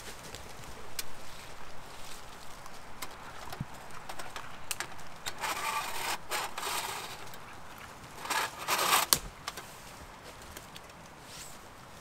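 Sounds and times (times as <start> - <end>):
thin metal panels scraping: 5.2 - 7.4, 8.2 - 9.2.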